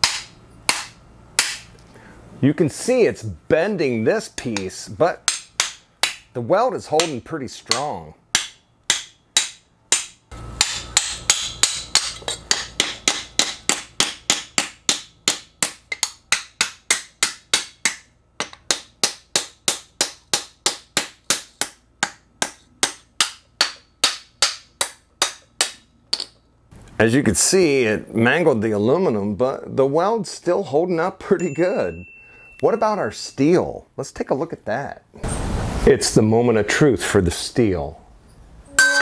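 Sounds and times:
hammer striking metal: 0.0 - 1.7, 7.0 - 26.3, 38.7 - 39.0.

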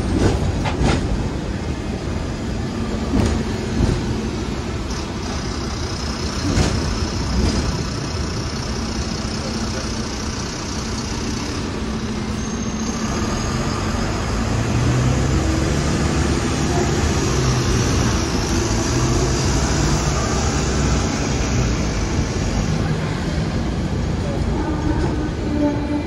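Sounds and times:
road traffic: 0.0 - 26.0
tram hum and rumble: 0.0 - 26.0.

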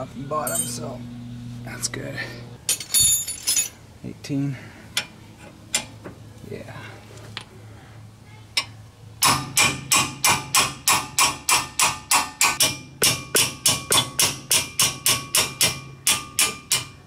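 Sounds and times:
hammer striking metal: 9.2 - 17.0.

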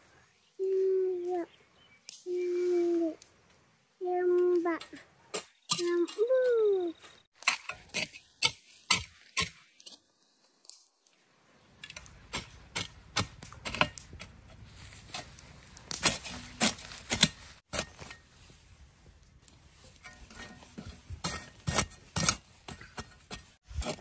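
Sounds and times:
hoe chopping dry soil: 7.4 - 10.0, 11.8 - 14.4, 15.0 - 18.2, 20.0 - 24.0.

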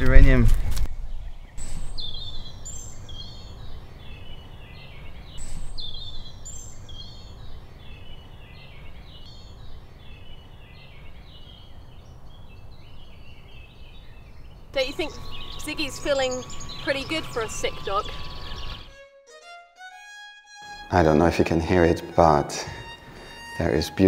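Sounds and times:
songbirds singing: 0.9 - 18.9.

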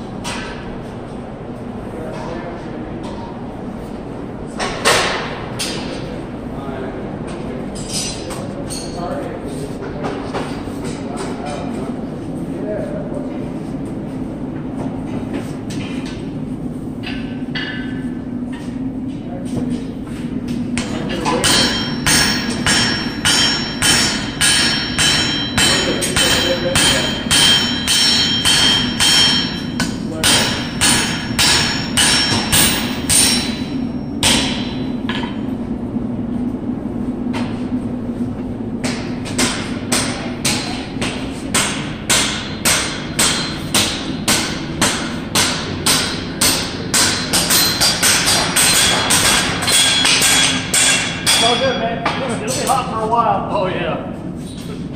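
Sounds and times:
steady low hum: 0.0 - 54.9
hammer striking steel on anvil: 20.8 - 35.4, 38.8 - 52.6.

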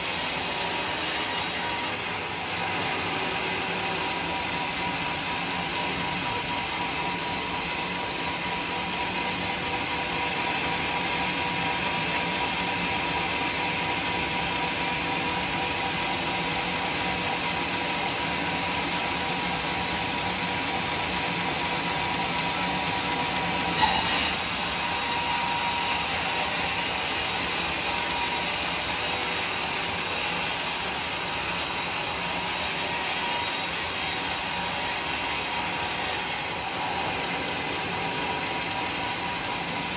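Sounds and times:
band saw cutting wood: 0.0 - 3.8, 23.7 - 39.9.

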